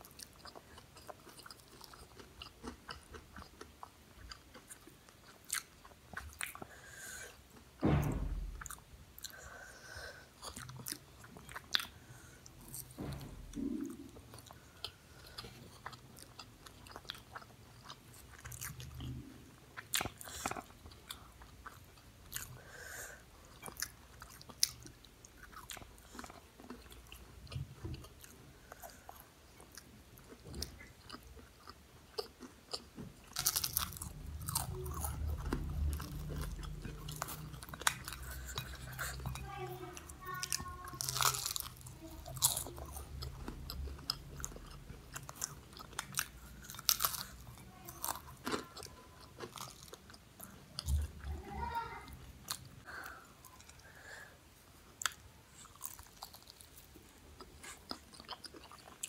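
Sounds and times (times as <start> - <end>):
person chewing crunchy food: 0.0 - 7.7, 8.5 - 51.1, 52.4 - 59.0
low thump: 7.8 - 8.8, 12.9 - 14.1.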